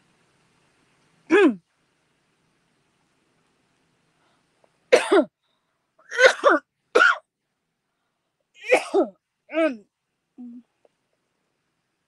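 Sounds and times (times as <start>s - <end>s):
woman coughing: 4.9s - 5.3s, 6.1s - 7.2s, 8.6s - 9.2s.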